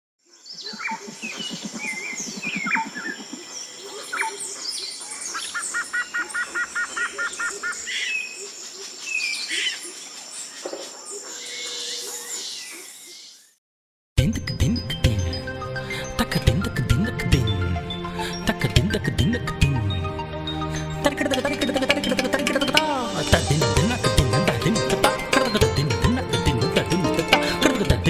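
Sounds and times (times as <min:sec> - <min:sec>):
birds chirping and whistling: 0:00.4 - 0:13.5, 0:17.8 - 0:19.4, 0:20.0 - 0:27.9.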